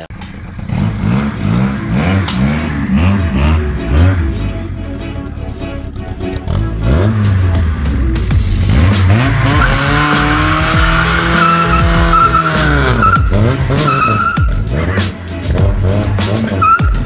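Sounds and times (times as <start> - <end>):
car engine revving hard: 0.5 - 4.6, 6.4 - 16.8
tyres squealing: 9.3 - 15.0, 16.5 - 17.0.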